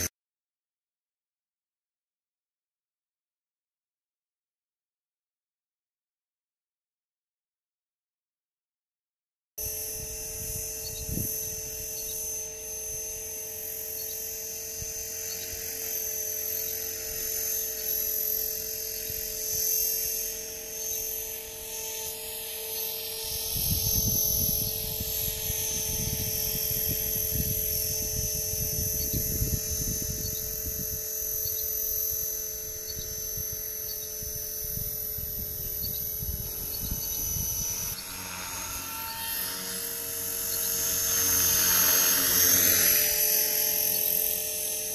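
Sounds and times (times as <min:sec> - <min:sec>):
rc helicopter whine: 0:09.6 - 0:44.9.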